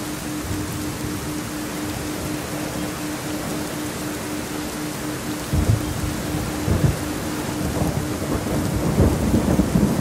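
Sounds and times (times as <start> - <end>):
steady rain: 0.0 - 10.0
low thunder rumbling: 5.4 - 10.0.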